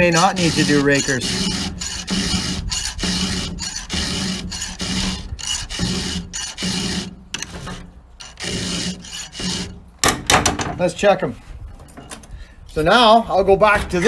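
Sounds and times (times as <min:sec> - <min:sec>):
file rasping on chainsaw chain: 0:00.0 - 0:09.8.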